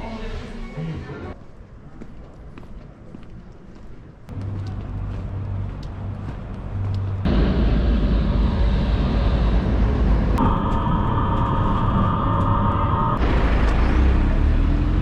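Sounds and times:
tram: 0:00.0 - 0:15.0
city street traffic rumble: 0:01.3 - 0:15.0
steady high whine: 0:07.2 - 0:14.8.

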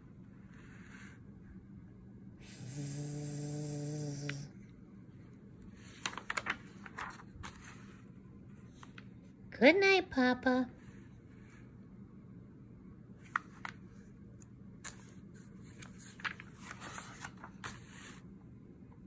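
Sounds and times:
woman imitating a snore: 0:02.4 - 0:04.5
book page turning: 0:05.7 - 0:09.2, 0:13.2 - 0:18.3.

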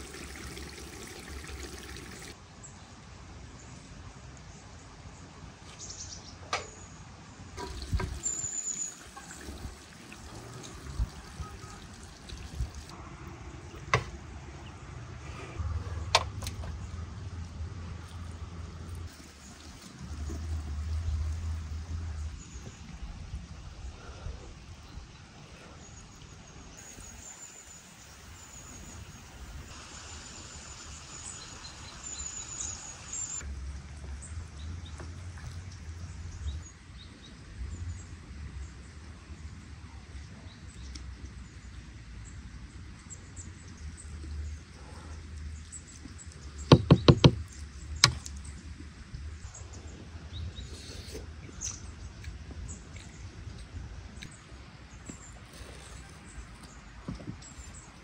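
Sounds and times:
sharp knocks: 0:46.7 - 0:47.4.

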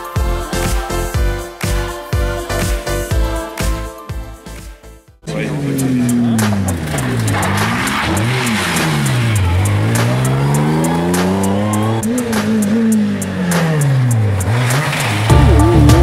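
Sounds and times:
music: 0:00.0 - 0:16.0
rally car engines revving: 0:05.2 - 0:16.0.

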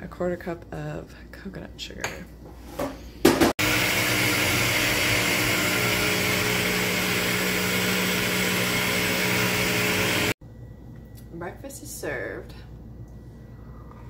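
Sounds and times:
blender motor running: 0:03.6 - 0:10.4.

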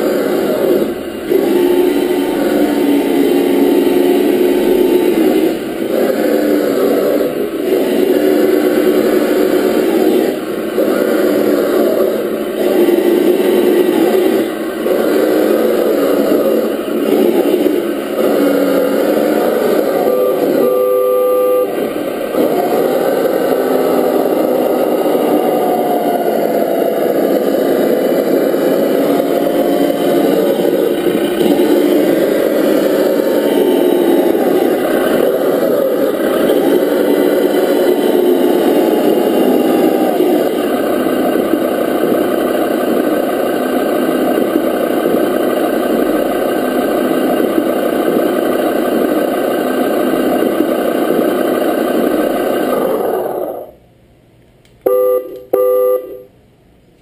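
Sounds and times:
rc car motor running: 0:00.0 - 0:53.8
brief steady tone: 0:19.8 - 0:21.8, 0:54.8 - 0:56.3.

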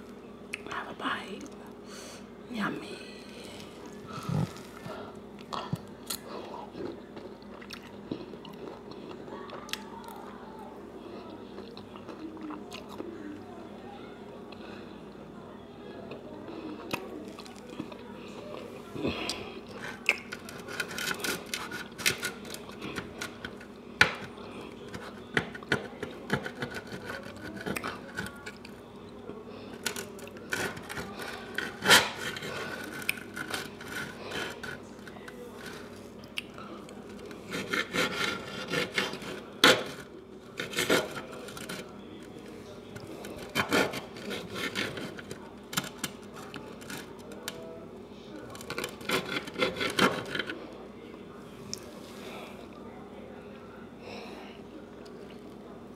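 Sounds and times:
knife sawing through steak: 0:37.3 - 0:40.0, 0:48.8 - 0:50.5
knife scraping and clicking on dish: 0:48.6 - 0:50.6.

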